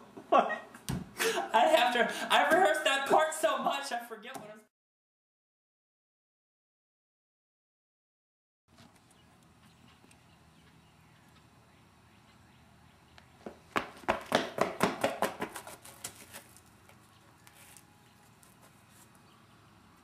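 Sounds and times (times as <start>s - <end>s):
faint outdoor hiss: 8.7s - 14.4s
footsteps on concrete: 13.2s - 19.2s.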